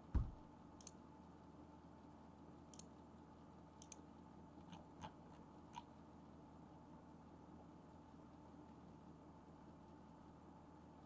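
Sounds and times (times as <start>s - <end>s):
computer mouse clicks: 0.8s - 1.0s, 2.7s - 3.0s, 3.8s - 5.9s.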